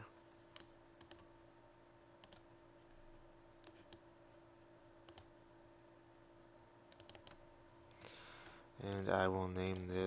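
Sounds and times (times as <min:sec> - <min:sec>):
low steady hum: 0:00.0 - 0:10.0
computer mouse clicks: 0:00.5 - 0:01.3, 0:02.2 - 0:02.5, 0:03.6 - 0:04.0, 0:05.0 - 0:05.3, 0:06.9 - 0:07.4.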